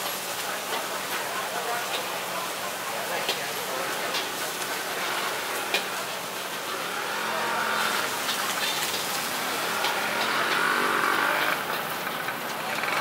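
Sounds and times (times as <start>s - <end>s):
indistinct voices: 0.6s - 13.0s
passing motor traffic: 3.8s - 13.0s.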